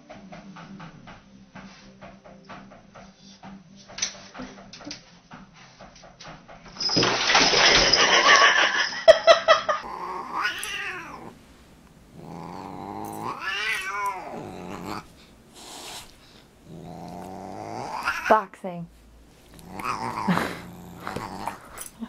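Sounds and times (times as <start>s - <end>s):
cat growling and yowling: 9.8s - 18.4s, 19.4s - 22.0s.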